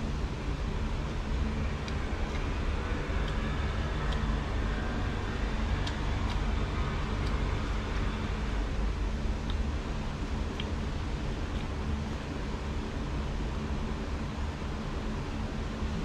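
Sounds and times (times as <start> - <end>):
distant road traffic rumble: 0.7 - 11.7
soft clicks of eating by hand: 1.8 - 2.5, 3.2 - 3.4, 4.0 - 4.3, 5.8 - 6.4, 9.4 - 9.7, 10.5 - 10.8, 11.5 - 11.8.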